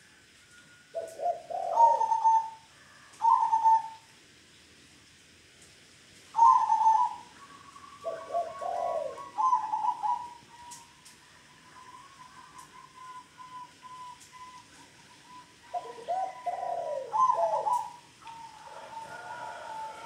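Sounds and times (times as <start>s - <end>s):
doves cooing: 0.9s - 4.1s, 6.4s - 20.0s
thin whistle-like tone: 11.6s - 15.6s.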